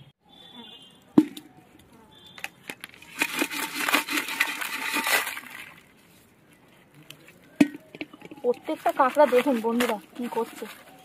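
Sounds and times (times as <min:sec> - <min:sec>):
crabs scrabbling and clattering: 0:02.2 - 0:06.0.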